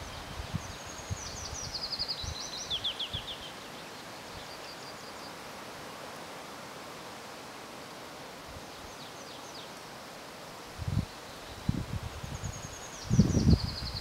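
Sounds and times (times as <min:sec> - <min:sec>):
songbird singing: 0:00.0 - 0:06.1, 0:08.6 - 0:10.2, 0:10.8 - 0:14.0
outdoor background hiss: 0:00.0 - 0:14.0.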